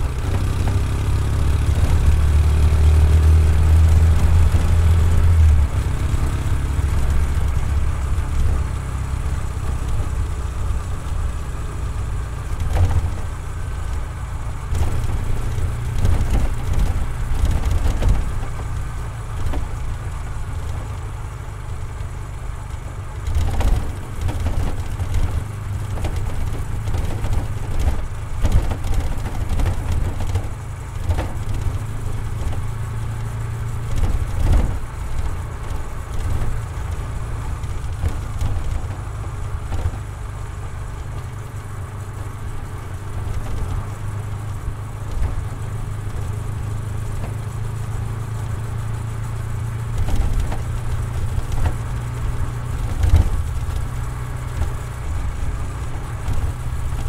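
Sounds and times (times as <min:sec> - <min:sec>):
motorcycle engine rumbling: 0:00.0 - 0:57.0.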